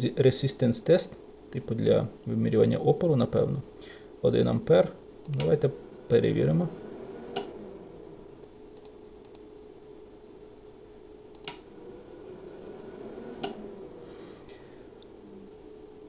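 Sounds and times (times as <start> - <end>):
faint steady hum: 0.0 - 16.0
computer mouse clicks: 5.2 - 5.5, 8.8 - 9.5, 11.3 - 11.7.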